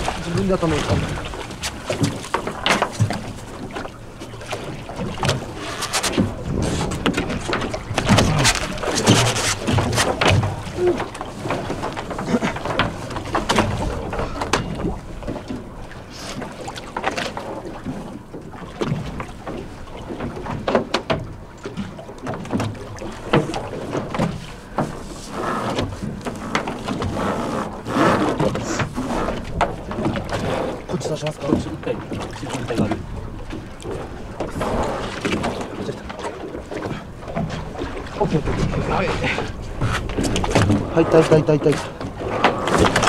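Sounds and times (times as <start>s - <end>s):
water splashing against hull: 0.0s - 43.0s.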